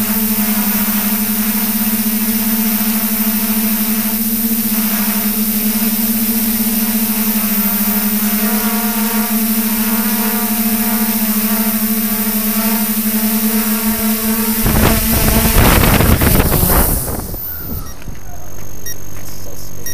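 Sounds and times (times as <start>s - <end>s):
drone propellers humming: 0.0s - 19.9s
wind buffeting microphone: 14.5s - 18.3s.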